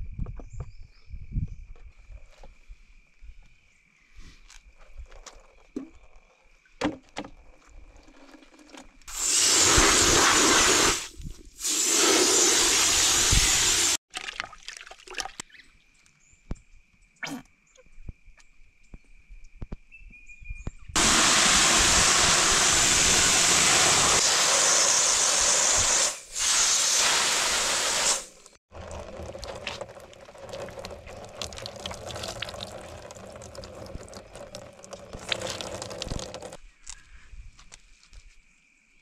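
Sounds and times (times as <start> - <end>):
water running hard: 9.1 - 14.0, 21.0 - 36.6.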